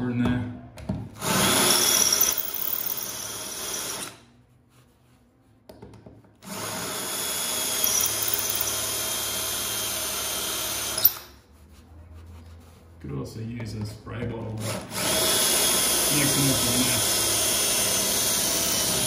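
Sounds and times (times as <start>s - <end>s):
cordless drill drilling into tile: 1.2s - 4.2s, 6.4s - 11.3s, 14.6s - 19.0s.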